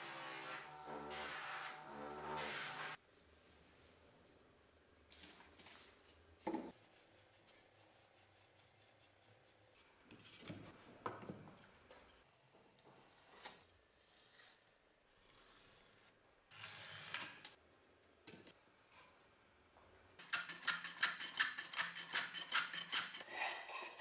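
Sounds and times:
pencil scratching along ruler: 20.2s - 23.2s.

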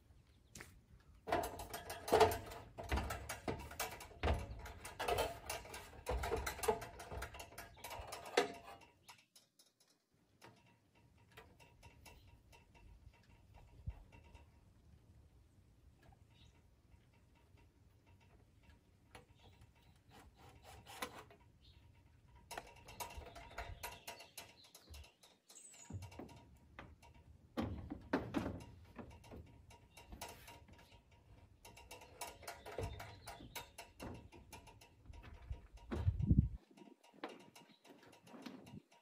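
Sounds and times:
saw rubbing and scraping on metal: 19.3s - 21.7s.

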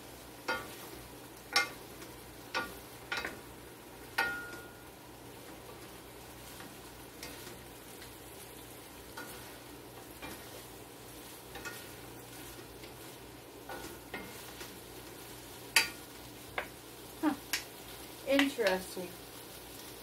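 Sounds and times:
frying hiss in a skillet: 0.0s - 20.0s
wooden spoon clicking on pan: 15.7s - 16.8s, 17.4s - 17.7s, 18.3s - 18.9s.

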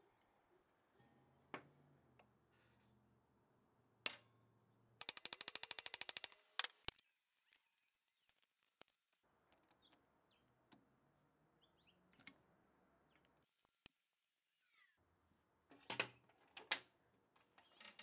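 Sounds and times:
rattle of metallic clicks: 5.0s - 6.9s.

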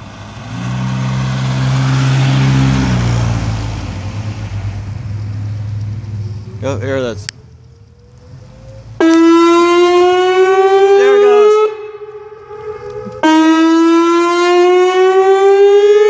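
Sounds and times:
warning siren: 7.4s - 16.0s.

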